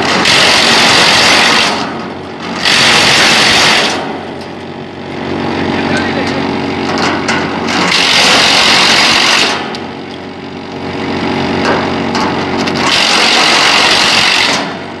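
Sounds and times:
machine humming: 0.0 - 15.0
machine chopping plastic tubing: 7.7 - 9.9, 11.6 - 15.0.

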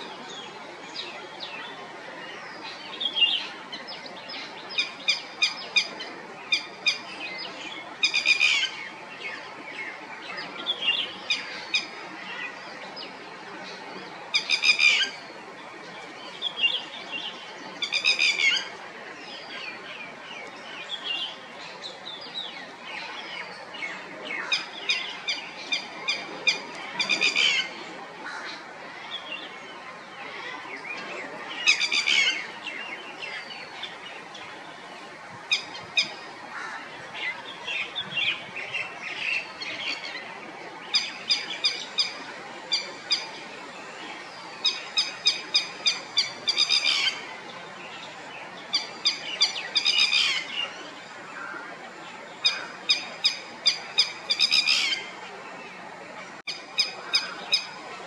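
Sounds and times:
lapwing calling: 44.2 - 47.4, 48.7 - 50.8, 52.4 - 55.2.

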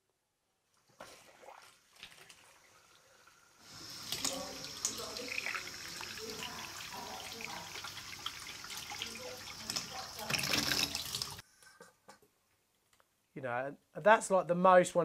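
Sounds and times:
water trickling into a pipe: 0.8 - 11.4.

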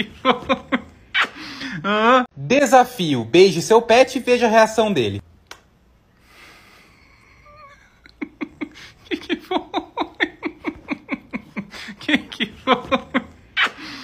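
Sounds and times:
woman laughing: 0.0 - 2.3, 7.4 - 14.0.

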